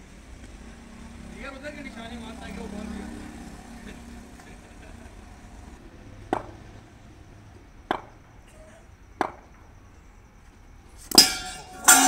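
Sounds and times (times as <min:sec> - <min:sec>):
cricket bat tapping on pitch: 0:06.3 - 0:06.6, 0:07.9 - 0:08.2, 0:09.2 - 0:09.6.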